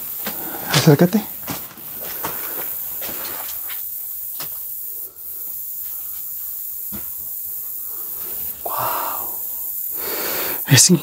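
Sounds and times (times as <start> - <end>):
steady hiss: 0.0 - 11.0
footsteps on rubble: 0.2 - 4.6.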